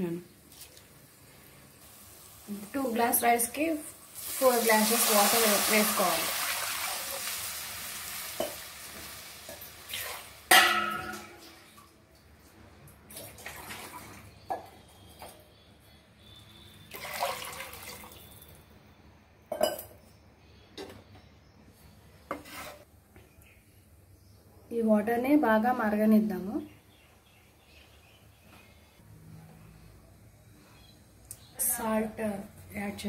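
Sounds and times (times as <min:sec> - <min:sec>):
water pouring into a metal pot: 0:04.2 - 0:11.3, 0:16.9 - 0:18.4.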